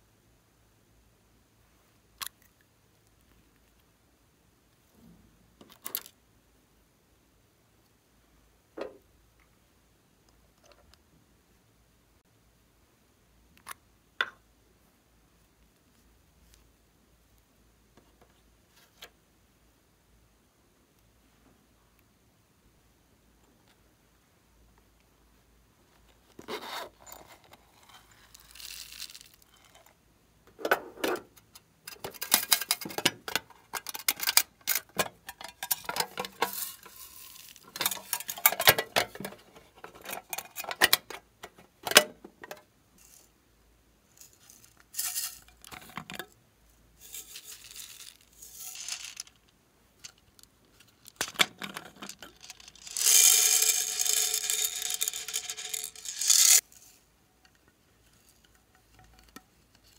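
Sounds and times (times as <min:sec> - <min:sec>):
small cases clicking and rattling: 0:30.5 - 0:42.7.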